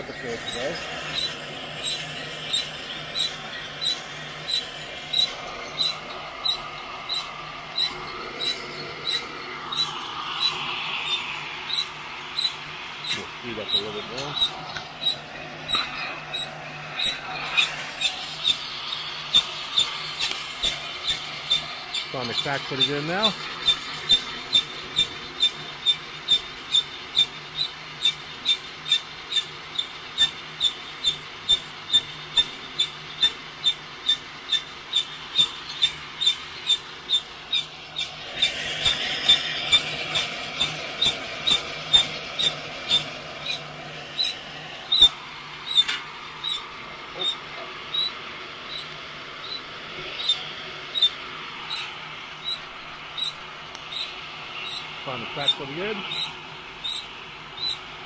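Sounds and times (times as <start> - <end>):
roaster drum squeaking: 0.0 - 58.0
heat gun blowing: 0.4 - 24.7, 34.1 - 48.1.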